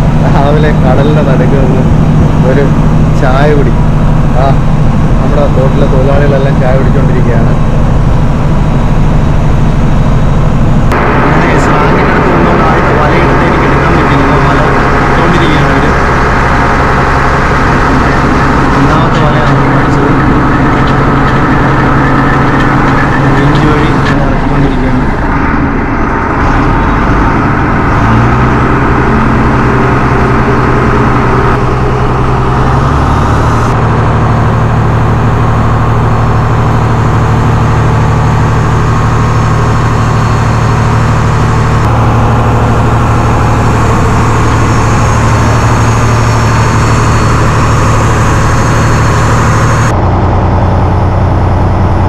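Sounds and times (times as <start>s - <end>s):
boat diesel engine droning: 0.0s - 52.0s.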